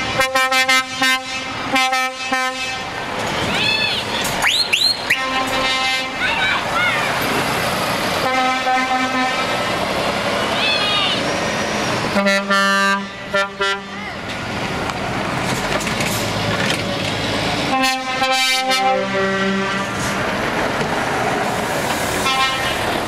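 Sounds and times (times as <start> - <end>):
truck air horn blasts: 0.0 - 2.9, 4.8 - 6.2, 8.2 - 9.6, 12.1 - 14.0, 17.7 - 20.2, 22.2 - 22.9
truck diesel engines running: 0.0 - 23.0.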